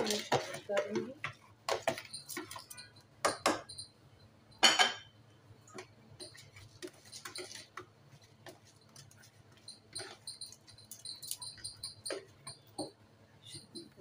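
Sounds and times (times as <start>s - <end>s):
kitchenware clinking and knocking: 0.0s - 3.9s, 4.6s - 5.1s.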